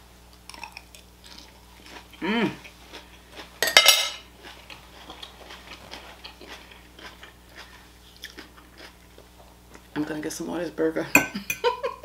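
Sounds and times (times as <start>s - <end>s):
metal fork clinking on plate: 11.2s - 11.7s.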